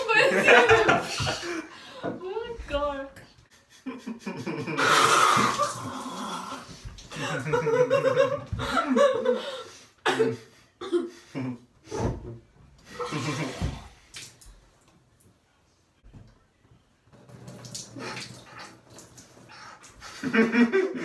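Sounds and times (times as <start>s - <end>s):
person laughing and gurgling: 3.9s - 9.4s, 12.9s - 13.9s
water splashing in bathtub: 4.8s - 8.7s, 12.8s - 14.9s, 17.2s - 20.4s
water splutter: 5.2s - 6.3s, 17.3s - 19.9s.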